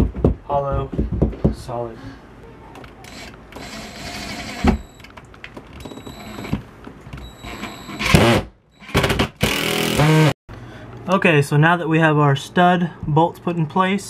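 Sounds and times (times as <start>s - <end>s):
knock: 0.0s - 1.6s
cordless drill motor whining: 3.0s - 5.0s.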